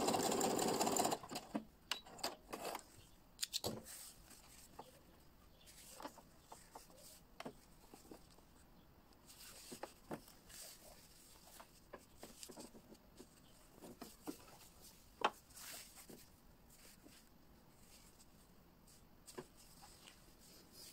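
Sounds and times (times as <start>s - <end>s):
fabric rustling: 3.8s - 8.6s, 9.2s - 20.9s.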